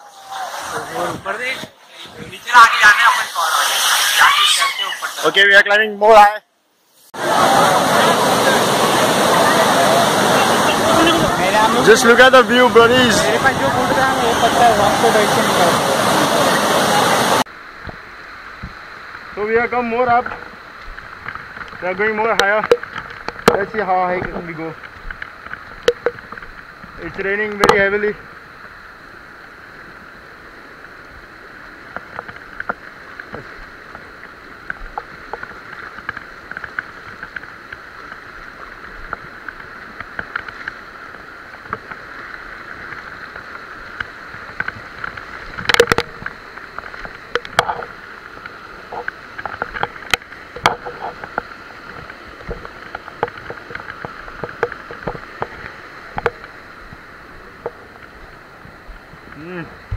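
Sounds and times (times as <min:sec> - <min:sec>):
water rushing over rocks: 0:07.2 - 0:59.9.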